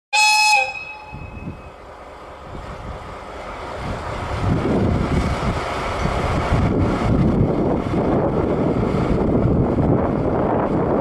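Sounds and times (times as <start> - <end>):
locomotive horn blast: 0.1 - 1.8
diesel engine rumbling: 1.2 - 11.0.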